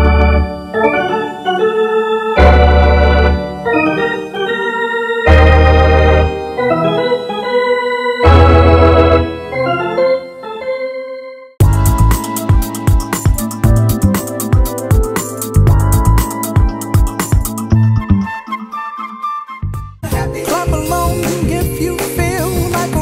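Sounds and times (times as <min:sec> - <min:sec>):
organ-like keyboard tune: 0:00.0 - 0:23.0
deep bass notes: 0:11.6 - 0:12.2, 0:13.6 - 0:14.2, 0:15.6 - 0:16.8, 0:17.6 - 0:18.3
music track with fast beat: 0:11.6 - 0:18.3, 0:19.8 - 0:23.0.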